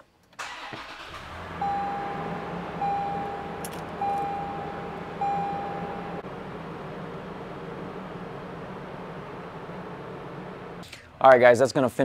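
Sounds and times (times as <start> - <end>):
car engine starting and idling: 0.4 - 11.2
dashboard warning chime beeps: 1.6 - 6.2.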